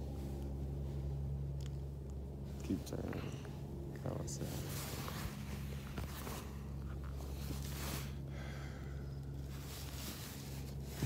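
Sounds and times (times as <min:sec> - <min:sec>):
steady low hum: 0:00.0 - 0:11.0
fabric swishing and rustling: 0:04.4 - 0:08.3, 0:09.4 - 0:11.0.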